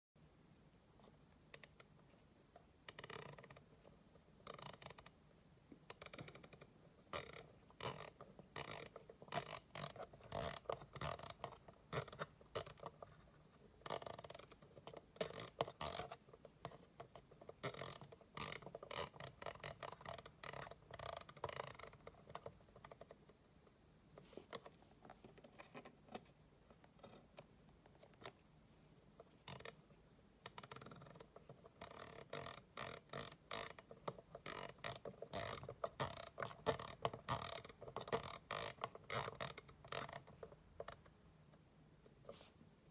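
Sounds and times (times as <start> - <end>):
fingers rubbing on metal shaft: 2.9 - 5.2, 5.9 - 23.2, 29.2 - 41.1.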